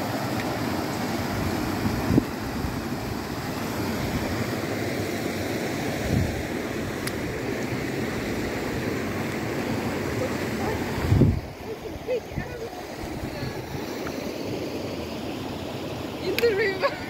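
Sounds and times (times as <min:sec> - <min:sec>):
river water rushing over weir: 0:00.0 - 0:17.0
wind on microphone: 0:01.2 - 0:04.5, 0:06.0 - 0:07.3, 0:10.6 - 0:14.2.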